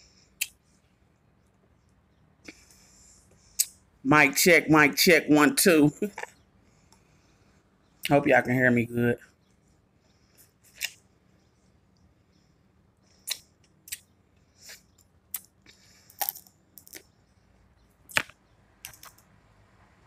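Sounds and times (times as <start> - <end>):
wet mouth smacks and sucks: 13.2 - 14.1.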